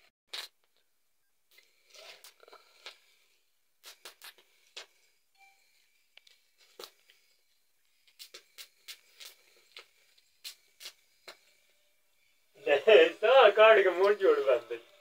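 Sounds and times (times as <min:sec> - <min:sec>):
fire crackling: 0:06.1 - 0:15.0.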